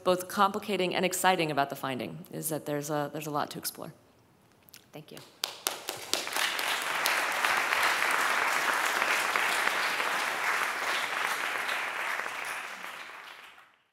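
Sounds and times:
audience applauding: 5.4 - 13.8.

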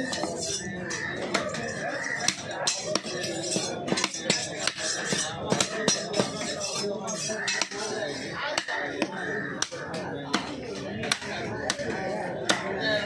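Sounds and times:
knife chopping on wooden block: 2.2 - 6.8.

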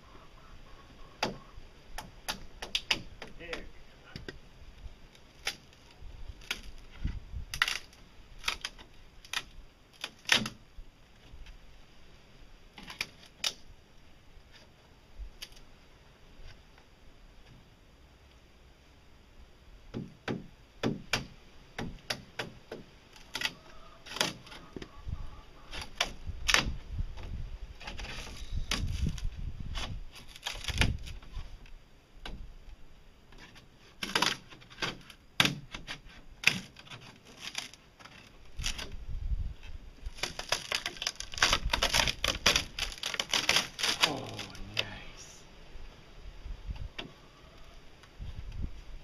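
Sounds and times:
fibreglass cracking and snapping: 5.1 - 6.9, 7.5 - 10.6, 12.8 - 13.6, 15.4 - 15.6, 20.8 - 24.6, 25.7 - 26.8, 27.8 - 31.4, 34.0 - 39.0, 40.0 - 44.9.

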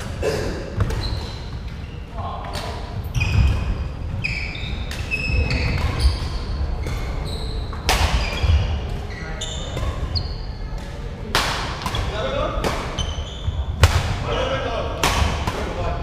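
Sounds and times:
shoes squeaking on wooden floor: 0.8 - 10.6, 12.9 - 13.8
racket hitting shuttlecock: 7.8 - 9.0, 15.0 - 15.7.

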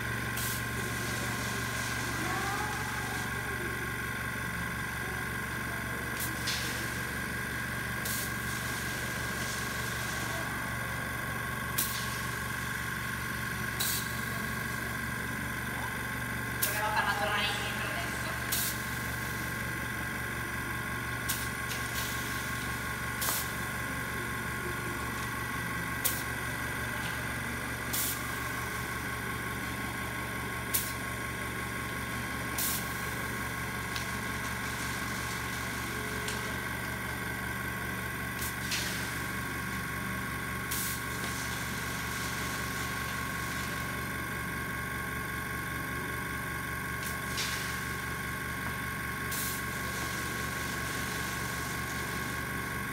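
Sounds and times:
air compressor running: 0.0 - 52.9
compressed air hissing: 49.3 - 52.6.

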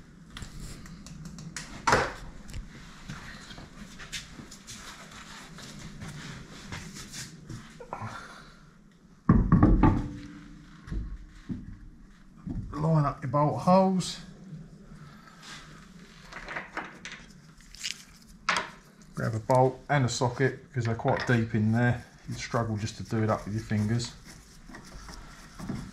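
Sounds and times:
knock: 9.3 - 10.3.

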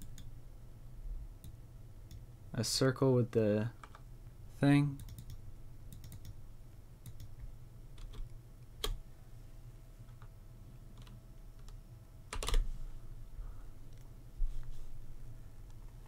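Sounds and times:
keyboard keystrokes and clicks: 0.0 - 0.3, 4.9 - 6.4, 7.0 - 9.0, 10.9 - 12.7
low steady hum: 0.0 - 16.0.

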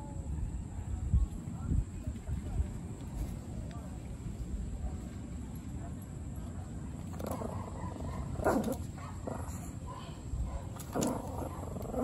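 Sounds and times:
dog growling: 10.8 - 12.0.

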